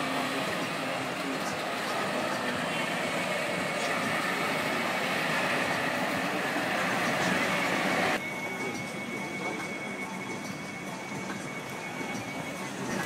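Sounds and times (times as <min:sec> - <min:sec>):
traffic: 0:00.0 - 0:08.2
faint steady high tone: 0:00.0 - 0:13.0
standing crowd murmur: 0:00.0 - 0:13.0.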